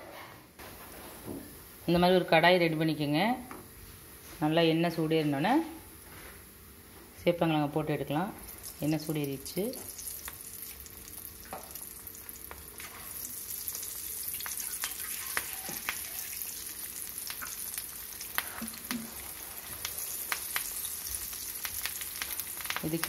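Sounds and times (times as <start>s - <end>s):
food deep-frying in oil: 7.9s - 23.0s.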